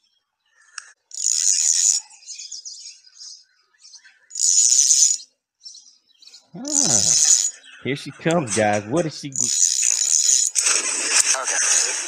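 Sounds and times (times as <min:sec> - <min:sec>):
soft bird chirps: 0:00.0 - 0:08.6, 0:09.3 - 0:10.6
bird buzzy trill: 0:01.1 - 0:02.9, 0:04.3 - 0:05.3, 0:06.6 - 0:07.7, 0:09.4 - 0:10.7.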